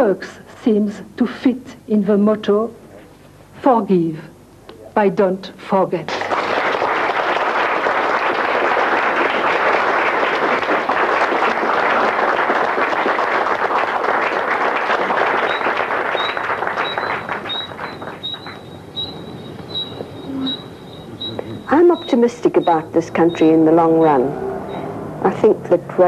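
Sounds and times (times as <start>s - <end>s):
audience applauding: 6.1s - 19.1s
faint high chirp: 15.4s - 24.9s.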